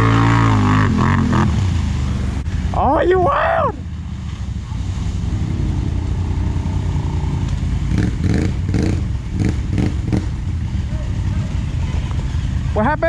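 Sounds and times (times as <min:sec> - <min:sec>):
engine revving: 0:00.0 - 0:02.2, 0:05.0 - 0:12.3
quad bike engine rumbling: 0:00.0 - 0:13.0.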